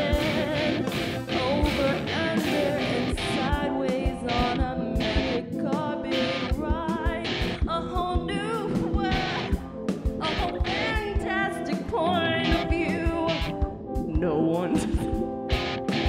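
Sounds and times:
person singing: 0:00.0 - 0:09.6, 0:10.2 - 0:15.2
electronic keyboard: 0:00.0 - 0:16.0
steady drum beat: 0:06.2 - 0:11.4, 0:12.4 - 0:16.0.

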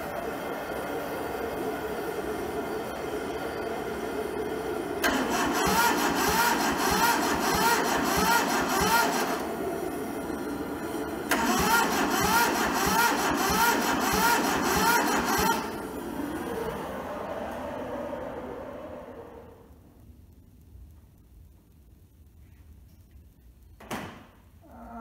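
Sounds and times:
starter motor cranking diesel engine: 0:00.0 - 0:19.4.

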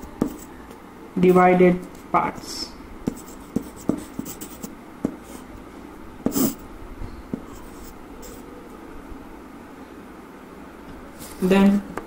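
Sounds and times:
pencil scratching on paper: 0:00.2 - 0:00.5, 0:03.1 - 0:05.5, 0:06.2 - 0:06.6, 0:07.3 - 0:08.4.

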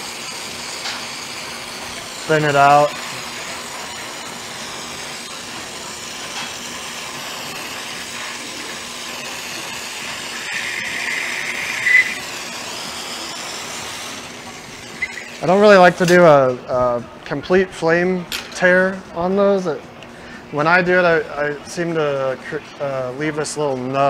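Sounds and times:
louder higher hiss: 0:00.0 - 0:16.0
torch flame hissing: 0:00.0 - 0:16.1.

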